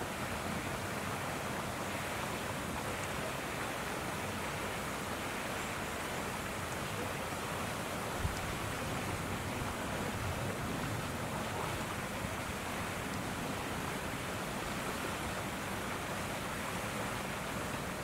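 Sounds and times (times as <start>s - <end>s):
rushing outdoor background noise: 0.0s - 18.0s.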